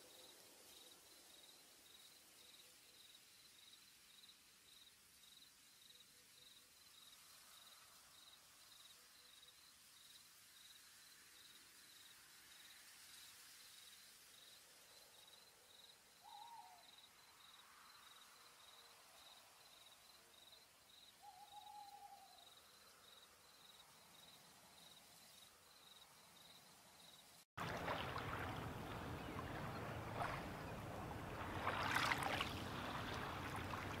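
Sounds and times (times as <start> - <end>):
crickets chirping: 0.0 - 34.0
rushing water: 27.6 - 34.0.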